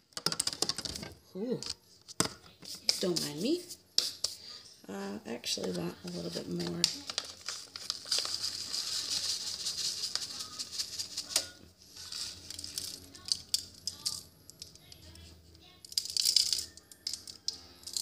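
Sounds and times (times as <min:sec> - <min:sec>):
seasoning rattling in packet: 0:06.1 - 0:15.2, 0:15.8 - 0:18.0.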